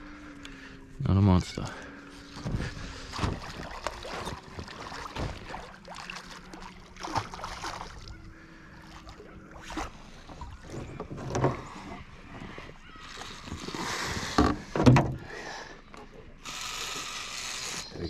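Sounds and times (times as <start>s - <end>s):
fish splashing at the surface: 3.0s - 8.2s.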